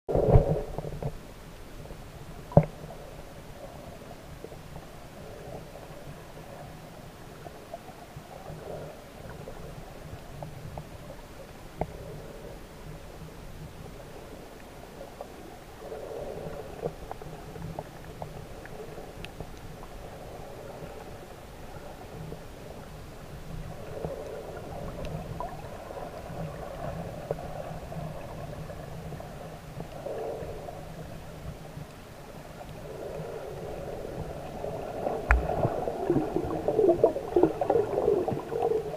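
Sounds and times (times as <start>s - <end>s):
underwater rumble of moving water: 0.1s - 38.9s
faint clicks: 11.8s - 12.1s, 16.5s - 19.9s, 23.5s - 25.6s, 35.2s - 36.2s.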